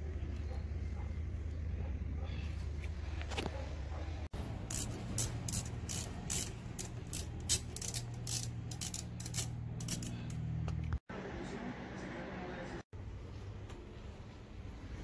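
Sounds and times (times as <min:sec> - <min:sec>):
ratchet wrench clicking: 0:04.6 - 0:10.4.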